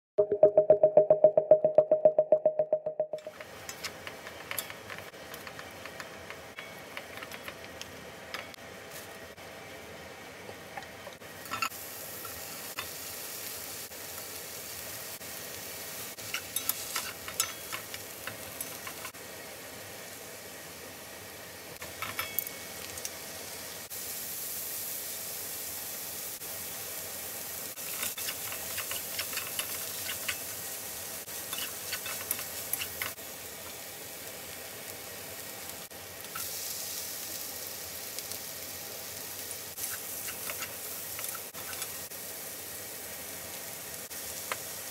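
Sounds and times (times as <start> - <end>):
spatula clicking and scraping pan: 3.2 - 8.6, 16.2 - 19.2, 27.8 - 30.5, 31.4 - 33.2, 39.8 - 42.0
food sizzling in a pan: 3.2 - 44.9.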